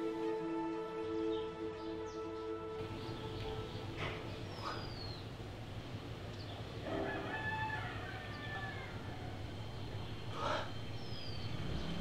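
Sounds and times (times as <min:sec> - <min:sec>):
rooster crowing: 0:06.8 - 0:09.5.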